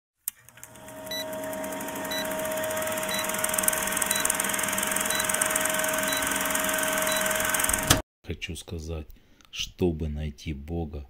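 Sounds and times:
film projector clatter: 0.3s - 8.0s.

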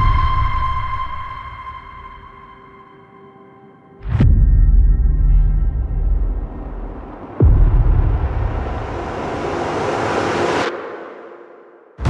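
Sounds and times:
deep booming hit: 7.4s - 9.1s.

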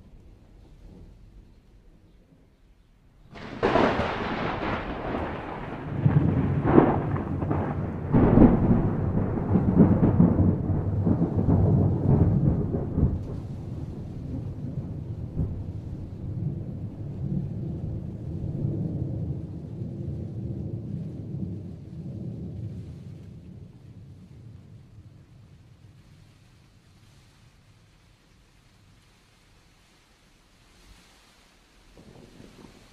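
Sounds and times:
thunder crackling and rumbling: 0.0s - 29.0s, 31.7s - 32.9s.

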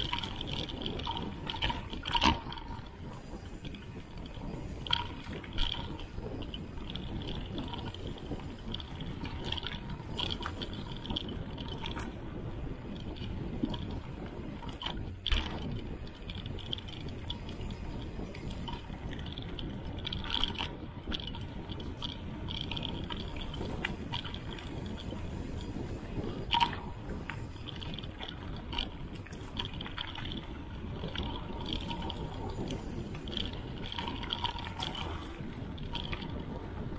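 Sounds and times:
bike clicking and rattling: 0.0s - 36.9s
bike tyres rumbling on dirt trail: 0.0s - 36.9s
wind on microphone: 0.0s - 36.9s.

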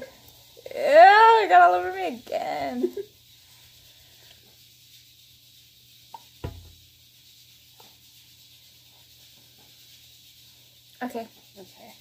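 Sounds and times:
dull thump: 6.4s - 6.8s.

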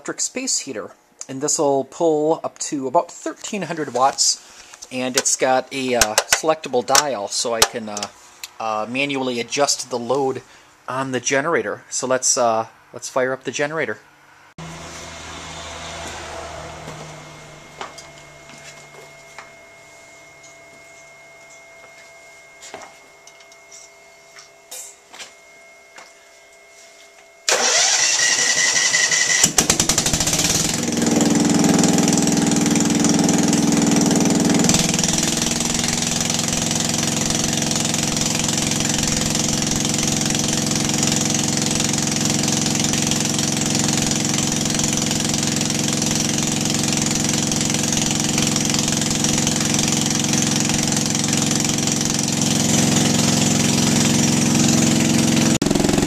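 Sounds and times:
generator running: 14.6s - 21.0s, 27.5s - 56.0s
generator engine cranking: 27.5s - 56.0s.

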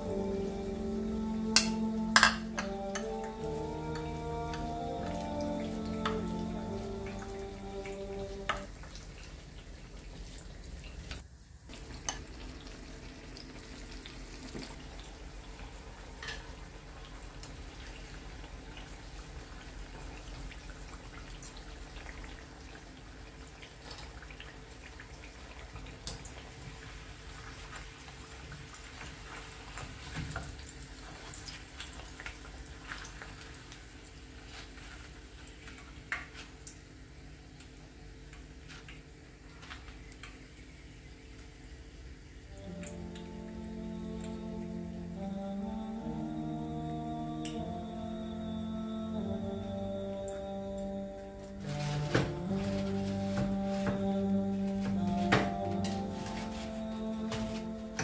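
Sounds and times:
food deep-frying in oil: 5.0s - 43.4s.

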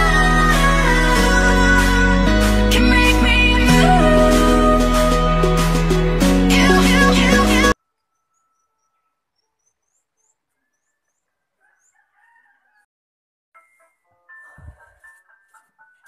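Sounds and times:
background music: 0.0s - 7.8s, 13.6s - 16.0s
small birds chirping: 8.0s - 12.3s
distant rooster crowing: 11.3s - 12.9s.

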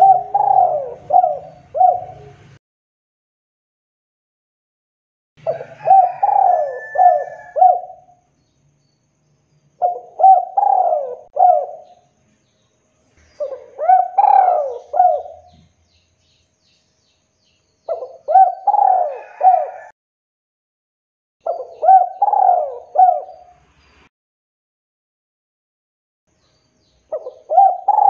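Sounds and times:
dove cooing: 0.0s - 2.6s, 5.4s - 8.2s, 9.8s - 12.0s, 13.4s - 15.7s, 17.9s - 19.9s, 21.4s - 23.6s, 27.1s - 28.0s.

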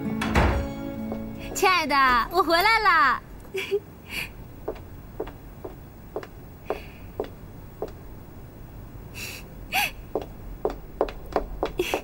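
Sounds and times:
footsteps on hard floor: 0.2s - 1.7s, 4.7s - 8.0s, 10.2s - 12.0s.

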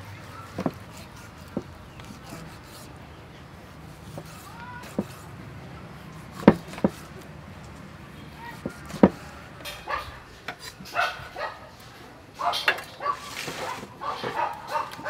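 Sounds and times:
cleaver knocking on wooden board: 6.4s - 7.0s, 8.6s - 9.2s.

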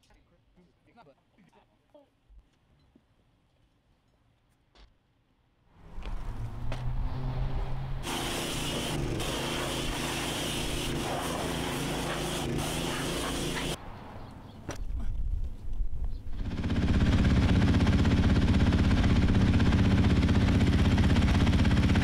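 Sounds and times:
hissing water jet spraying: 8.0s - 13.8s
pressure washer motor hum: 8.0s - 13.8s, 16.4s - 22.0s.

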